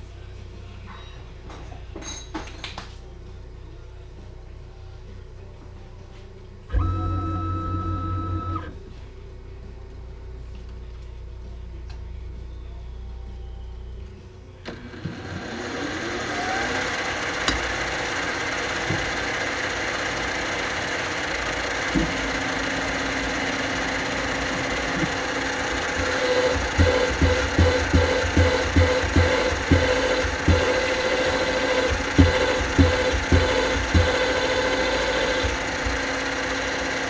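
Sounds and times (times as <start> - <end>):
milling machine motor spinning: 6.7 - 8.7, 14.6 - 37.0
drill pulsing into metal part: 14.7 - 37.0.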